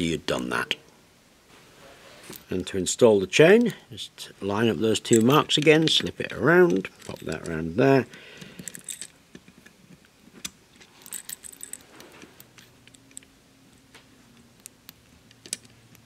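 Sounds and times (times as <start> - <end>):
metal roller chain clinking: 5.0 - 7.6, 8.6 - 9.2, 10.9 - 13.2.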